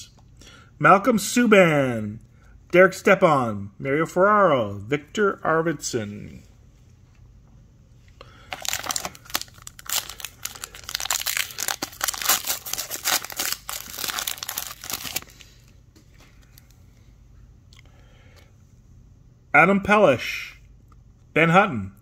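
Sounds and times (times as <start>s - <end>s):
foil wrapper crinkling: 8.4s - 15.6s.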